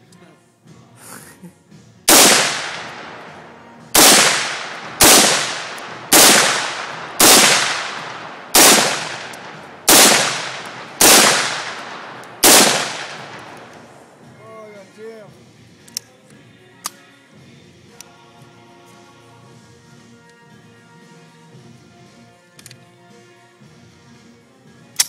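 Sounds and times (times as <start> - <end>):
rifle shots with long echo: 2.1 - 14.3.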